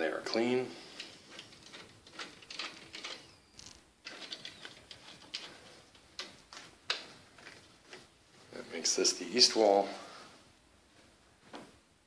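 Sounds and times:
window blind slats clicking: 0:00.9 - 0:08.5.

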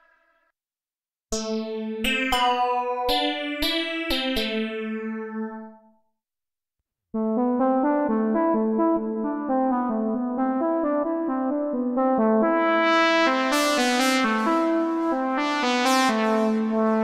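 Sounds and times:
synthesizer notes ringing out: 0:12.2 - 0:17.0.

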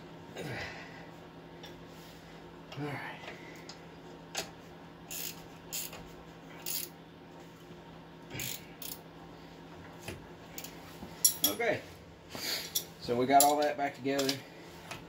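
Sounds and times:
ratchet wrench clicking: 0:05.1 - 0:06.0, 0:06.6 - 0:06.9, 0:08.4 - 0:09.0.

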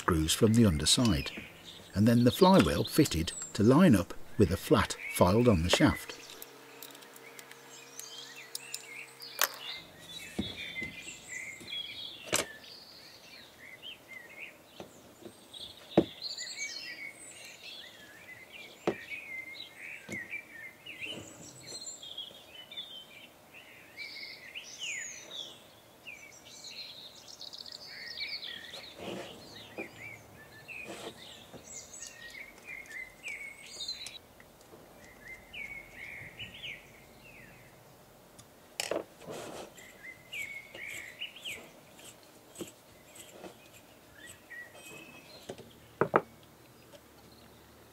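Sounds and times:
small birds chirping: 0:00.0 - 0:47.9.

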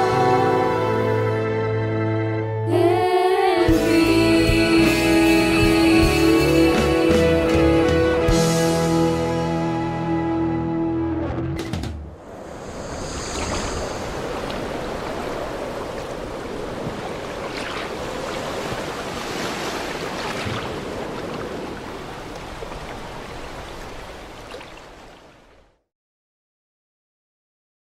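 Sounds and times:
steady rushing noise: 0:12.1 - 0:16.7.

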